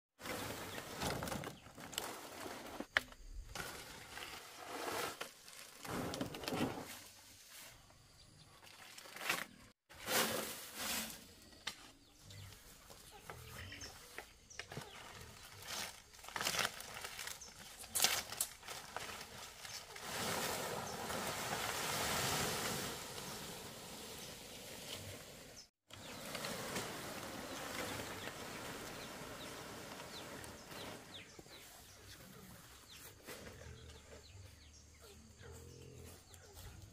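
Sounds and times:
palm fronds rustling and crackling: 0.2s - 7.8s, 8.6s - 34.0s
fronds dragged over grass: 14.5s - 31.9s.

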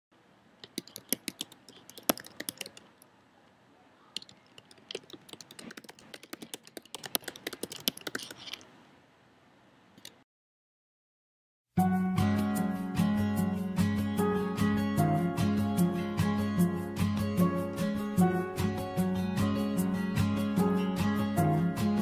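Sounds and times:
rapid keyboard typing: 0.6s - 3.0s, 4.2s - 8.6s.

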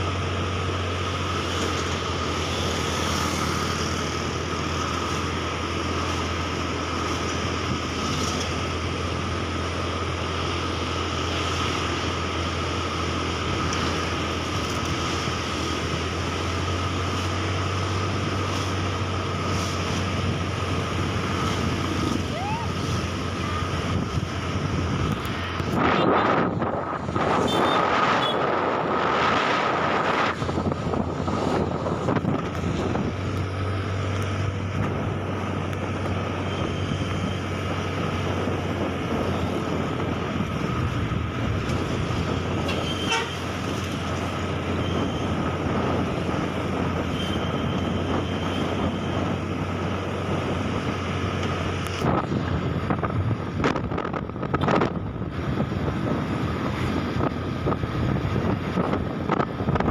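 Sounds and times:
road noise: 0.0s - 59.9s
wind buffeting microphone: 13.0s - 59.9s.

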